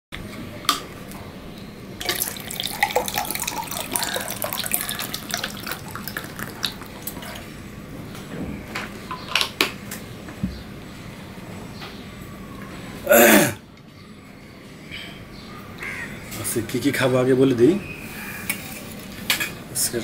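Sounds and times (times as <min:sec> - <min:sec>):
water pouring into a glass: 0:02.0 - 0:07.5.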